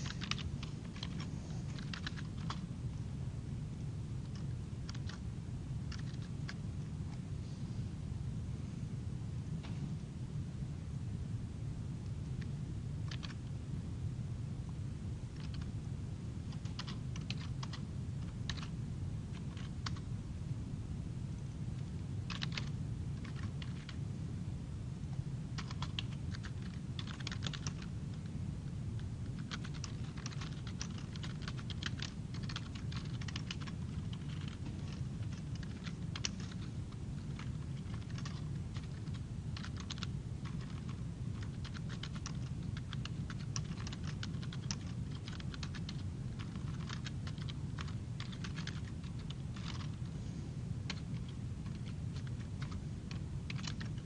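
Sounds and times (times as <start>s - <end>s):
keyboard typing: 0.0s - 2.6s, 4.2s - 5.2s, 5.9s - 6.6s, 13.0s - 13.4s, 15.4s - 15.7s, 16.5s - 18.7s, 19.3s - 20.1s, 22.3s - 24.0s, 25.6s - 28.0s, 29.0s - 50.0s, 50.9s - 54.0s
steady low hum: 0.0s - 54.0s.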